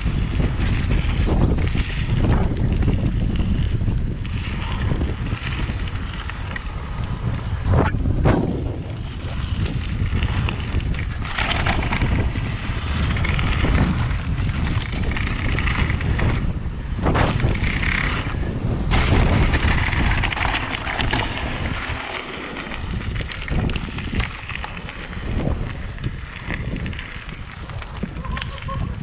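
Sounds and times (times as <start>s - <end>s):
wind buffeting microphone: 0.0s - 29.0s
tyres rolling over loose stones: 8.7s - 16.5s, 17.1s - 28.8s.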